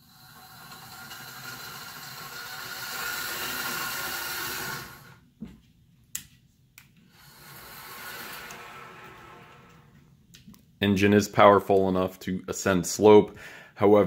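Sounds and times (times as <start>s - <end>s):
small electric motor and gears: 0.0s - 5.2s, 7.1s - 9.8s.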